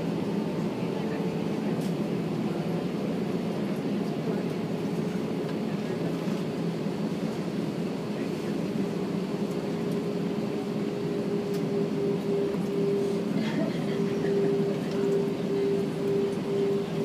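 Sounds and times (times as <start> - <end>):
jet engines humming: 0.0 - 17.0.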